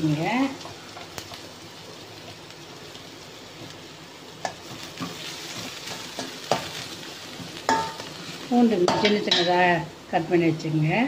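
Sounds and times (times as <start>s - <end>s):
onions sizzling in hot oil: 0.0s - 11.0s
metal spoon clinking against pan: 7.7s - 8.1s, 8.9s - 9.5s.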